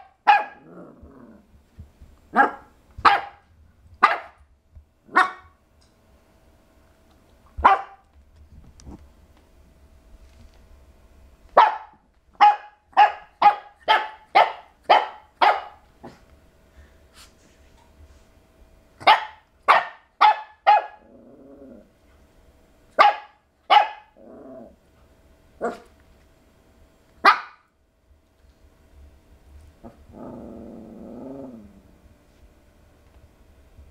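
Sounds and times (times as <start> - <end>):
puppy barking: 0.0 - 0.7, 2.3 - 3.4, 4.0 - 4.4, 5.1 - 5.6, 7.6 - 8.1, 11.6 - 16.2, 19.0 - 21.1, 23.0 - 24.2, 25.6 - 25.9, 27.2 - 27.7
puppy growling: 0.4 - 1.6, 20.9 - 22.0, 24.1 - 24.8, 25.6 - 25.9, 29.8 - 32.0.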